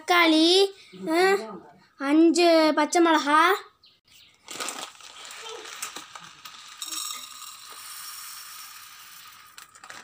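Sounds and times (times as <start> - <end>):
dry lentils pouring into a metal pot: 4.5 - 10.0.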